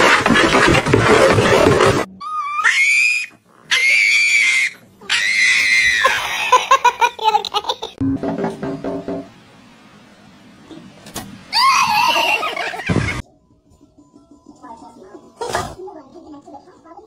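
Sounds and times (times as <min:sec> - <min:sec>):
dog wailing: 0:02.1 - 0:06.2.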